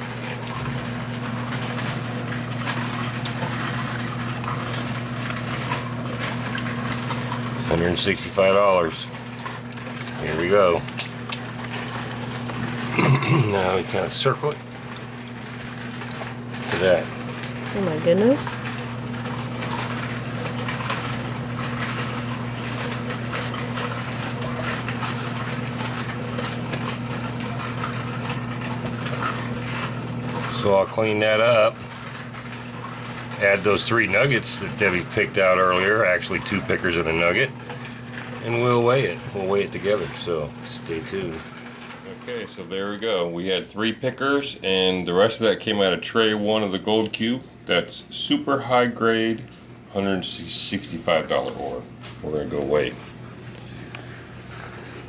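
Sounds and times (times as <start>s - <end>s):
water swishing in a plastic pan: 0.0s - 12.9s
water sloshing and splashing: 0.0s - 44.0s
steady motor hum: 0.0s - 55.0s.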